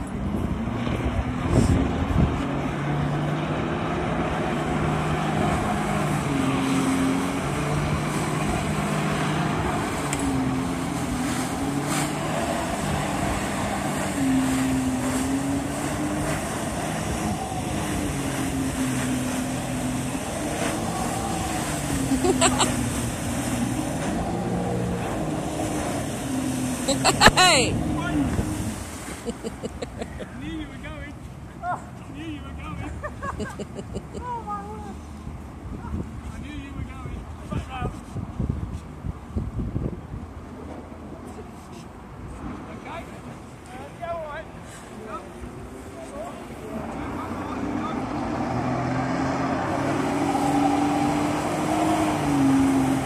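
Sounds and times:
jet ski engine revving: 0:00.1 - 0:30.8, 0:32.3 - 0:35.3, 0:45.3 - 0:53.0
water spray rushing: 0:04.9 - 0:30.1.

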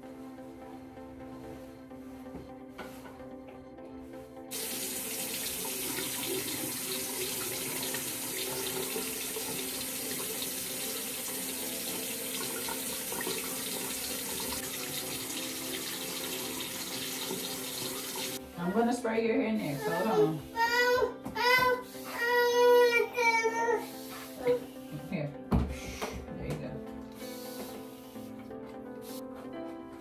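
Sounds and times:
faucet water running into sink: 0:04.5 - 0:18.4.

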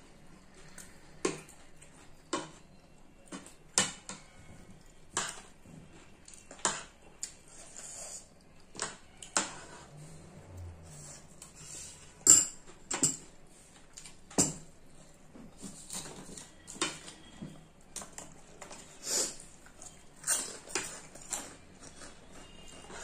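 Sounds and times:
spoons clinking on plates: 0:11.9 - 0:13.4, 0:19.7 - 0:23.0.

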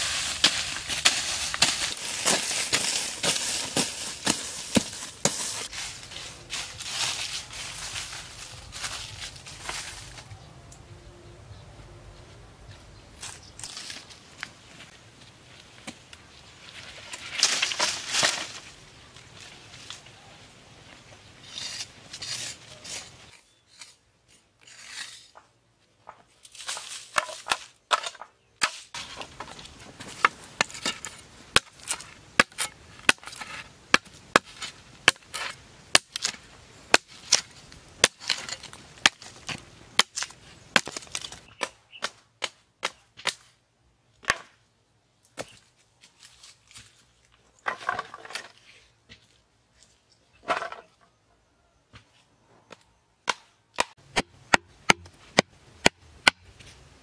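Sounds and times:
blade chopping wooden stake: 0:53.2 - 0:56.6.

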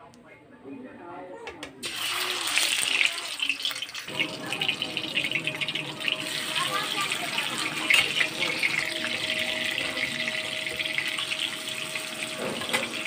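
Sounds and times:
fish sizzling in hot oil: 0:01.8 - 0:13.0.

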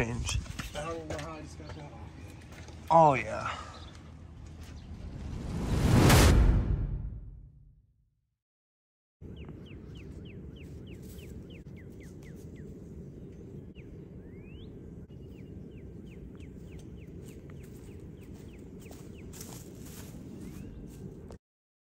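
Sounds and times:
steady low rumble: 0:03.9 - 0:07.6, 0:09.2 - 0:21.4
bird chirping: 0:09.2 - 0:21.1.

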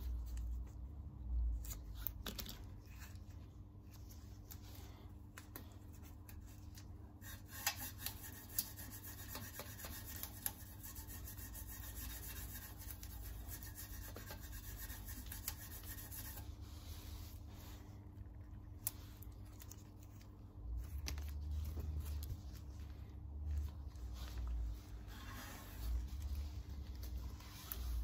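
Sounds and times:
cardboard rubbing on metal: 0:07.2 - 0:17.8, 0:24.1 - 0:28.0.

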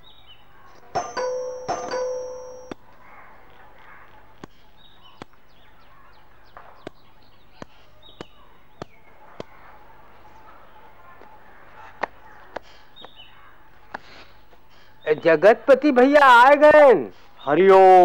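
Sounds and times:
bell ringing: 0:01.0 - 0:02.7.

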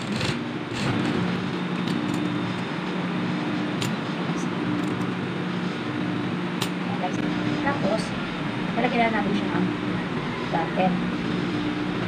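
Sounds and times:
sewing machine running: 0:00.0 - 0:01.4.

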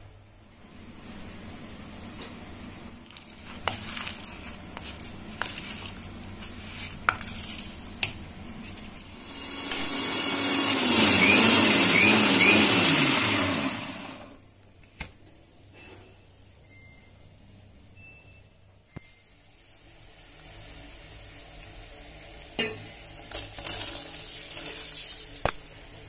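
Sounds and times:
steel jar and lid clattering: 0:03.1 - 0:08.0, 0:22.6 - 0:26.0
electric mixer grinder running: 0:09.1 - 0:14.4.

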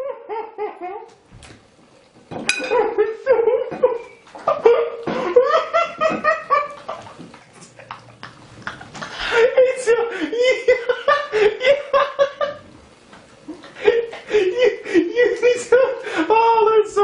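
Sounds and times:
person laughing hard: 0:00.0 - 0:01.1, 0:02.7 - 0:07.2, 0:08.6 - 0:12.7, 0:13.5 - 0:16.9.

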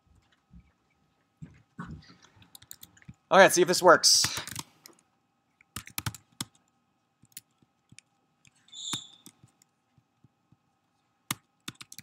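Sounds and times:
laptop keystrokes: 0:05.7 - 0:06.6, 0:11.3 - 0:12.0
short squeak: 0:08.7 - 0:09.2.

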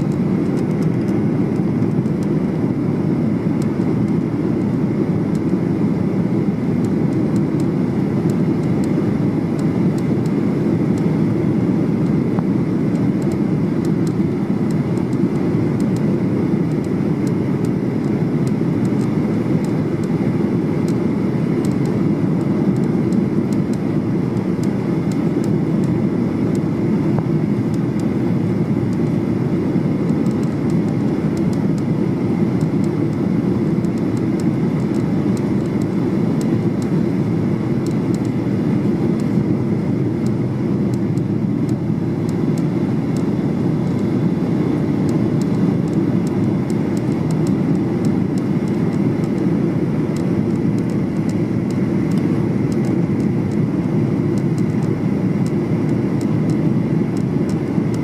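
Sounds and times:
airplane cabin airflow and engines: 0:00.0 - 0:58.0.

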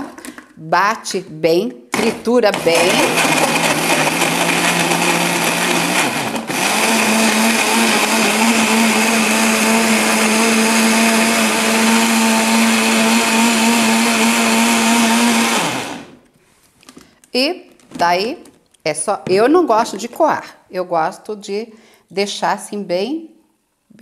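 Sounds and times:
blender motor running: 0:02.6 - 0:16.2.

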